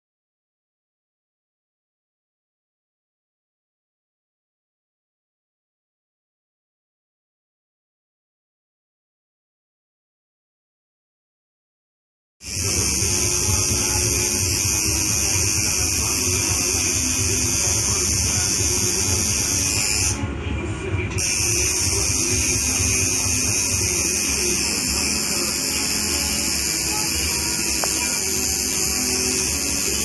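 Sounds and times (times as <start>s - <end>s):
tattoo machine buzzing: 12.4s - 20.2s, 21.2s - 30.0s.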